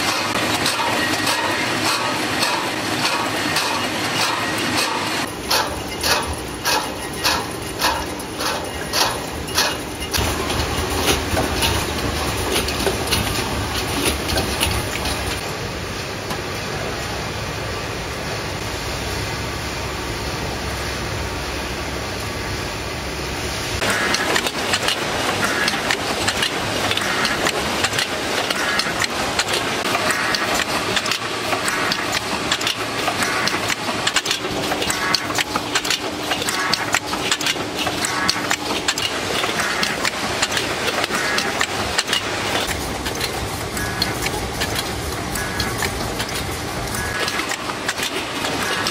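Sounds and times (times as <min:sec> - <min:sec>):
metal cans clattering on conveyors: 0:00.0 - 0:15.4.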